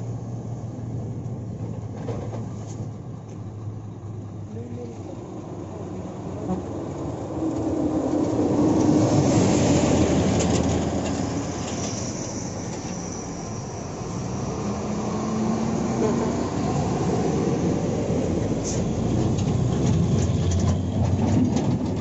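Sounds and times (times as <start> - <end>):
second truck approaching: 0.0 - 22.0
dump truck driving past: 5.0 - 22.0.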